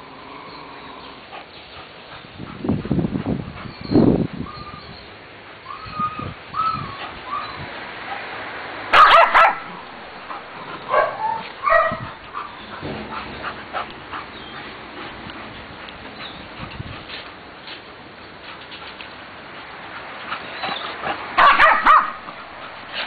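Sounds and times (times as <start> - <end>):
dog whining: 5.7 - 7.7
dog yipping: 5.7 - 7.7, 9.0 - 9.6, 10.8 - 12.8, 20.5 - 22.2
dogs barking: 8.9 - 15.6, 20.4 - 22.5.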